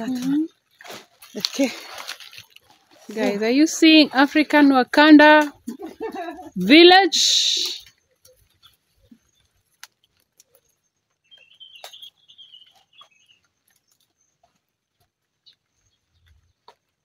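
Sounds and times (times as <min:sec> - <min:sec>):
leaves snapping and rustling: 0:00.0 - 0:03.5, 0:07.6 - 0:12.2.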